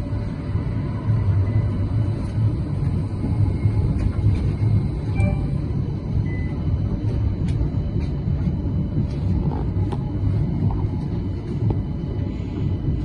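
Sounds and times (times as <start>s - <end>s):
tram rumbling along track: 0.0s - 13.0s
faint high tones: 5.2s - 5.8s.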